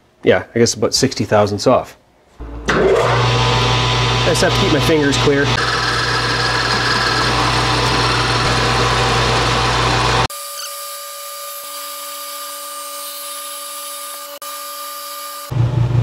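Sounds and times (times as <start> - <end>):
lathe running whine: 2.4 - 10.3
metal lathe cutting: 2.5 - 10.3.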